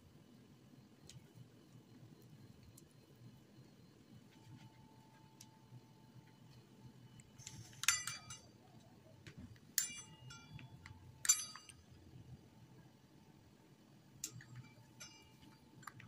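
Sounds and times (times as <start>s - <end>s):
pizza cutter clinking on surface: 11.3s - 11.7s, 14.8s - 15.4s.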